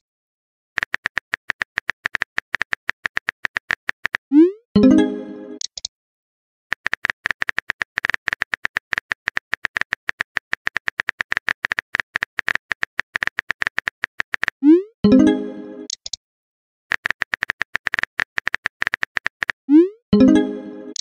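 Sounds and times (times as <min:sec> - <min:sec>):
phone keyboard typing clicks: 0:06.7 - 0:14.6, 0:16.9 - 0:19.6.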